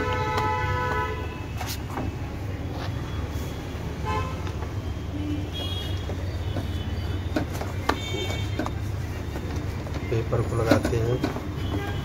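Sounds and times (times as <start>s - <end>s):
car horn toots: 0.0s - 1.4s, 5.2s - 8.7s, 11.0s - 12.0s
road traffic rumble: 0.0s - 12.0s.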